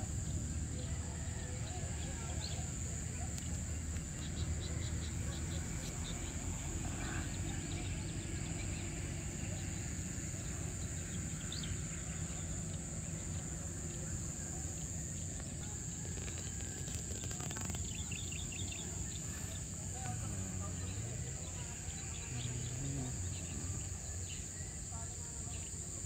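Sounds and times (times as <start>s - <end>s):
insects trilling: 0.0s - 26.0s.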